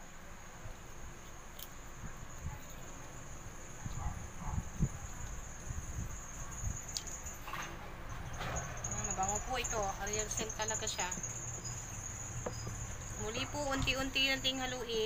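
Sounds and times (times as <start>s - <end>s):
crickets chirring: 0.0s - 15.0s
soft low knocks: 7.9s - 14.4s.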